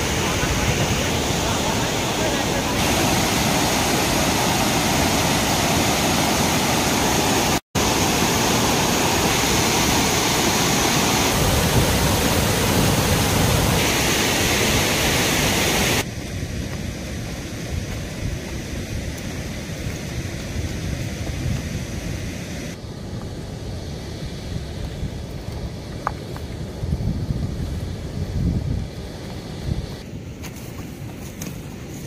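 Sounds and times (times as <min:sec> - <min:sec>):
water rushing: 0:00.0 - 0:16.4.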